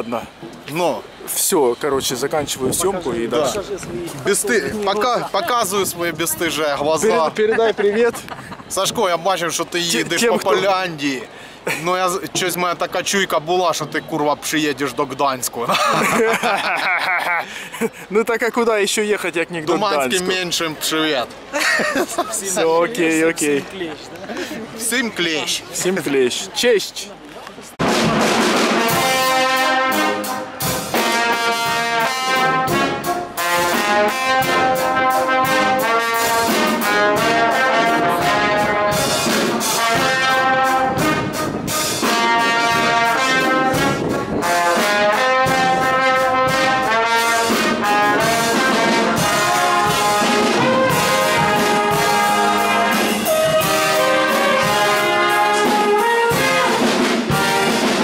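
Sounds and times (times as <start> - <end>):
brass band playing: 27.8 - 58.0
trumpets playing melody: 27.8 - 58.0.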